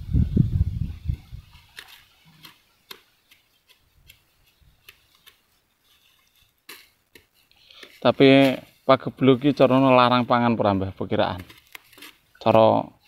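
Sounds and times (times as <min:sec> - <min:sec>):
wind buffeting microphone: 0:00.0 - 0:01.6
grass stems snapping: 0:01.6 - 0:08.6, 0:11.2 - 0:12.6.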